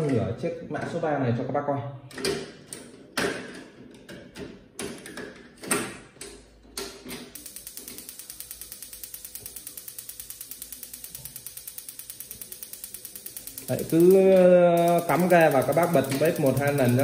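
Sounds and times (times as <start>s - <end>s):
gas stove igniter ticking: 7.4s - 17.0s.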